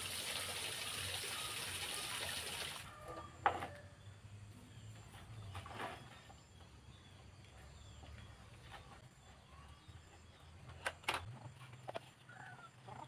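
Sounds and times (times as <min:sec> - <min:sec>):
water running from tap into wok: 0:00.0 - 0:02.8.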